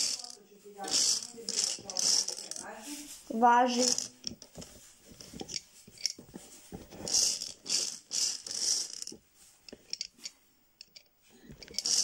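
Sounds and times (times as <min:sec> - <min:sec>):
bingo balls rattling in drum: 0:00.0 - 0:02.7, 0:03.7 - 0:09.2, 0:11.5 - 0:12.0.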